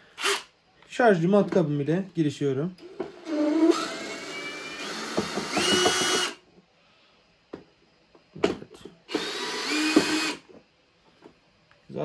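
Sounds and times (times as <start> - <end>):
cordless drill motor whining: 0.2 - 0.5, 2.8 - 6.4, 9.1 - 10.4.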